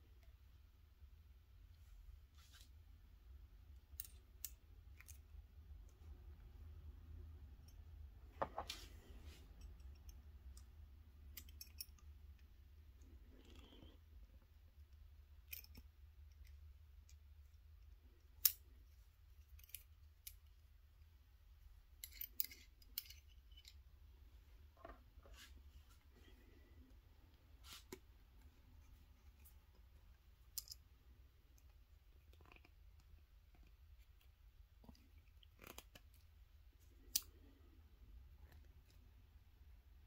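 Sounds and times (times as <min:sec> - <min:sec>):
faint low hum: 0:00.0 - 0:40.0.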